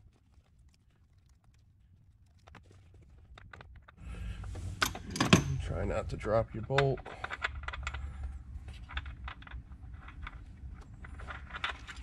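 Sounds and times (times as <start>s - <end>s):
steady low hum: 4.0s - 12.0s.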